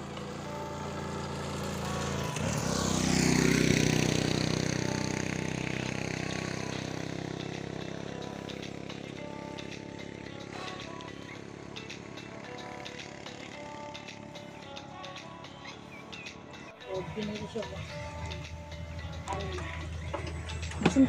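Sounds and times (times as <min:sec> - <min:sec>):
vehicle engine passing by: 0:00.0 - 0:10.8, 0:15.8 - 0:21.0.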